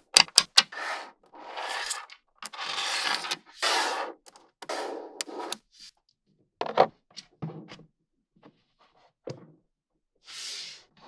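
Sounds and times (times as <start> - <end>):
magnetic balls clicking and scraping: 0.0 - 5.9.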